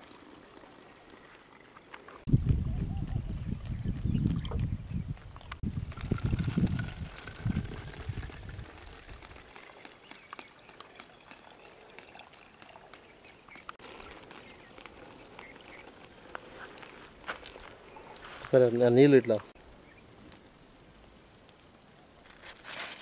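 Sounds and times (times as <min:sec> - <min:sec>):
water trickling into plastic bottle: 0:05.4 - 0:19.5, 0:21.2 - 0:23.0.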